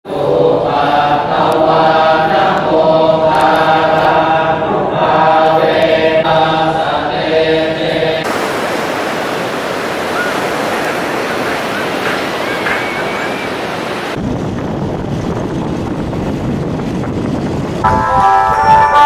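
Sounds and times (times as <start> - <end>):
voices chanting in unison: 0.1 - 8.4
ocean surf washing on beach: 5.6 - 17.4.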